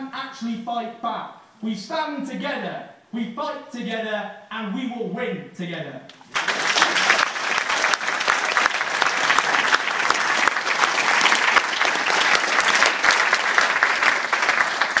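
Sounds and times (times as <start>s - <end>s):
hands clapping close by: 6.2s - 15.0s
audience applauding: 6.3s - 15.0s.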